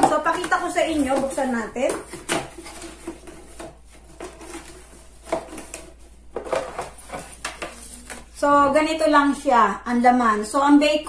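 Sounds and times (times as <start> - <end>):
paper rustling: 2.1 - 8.4.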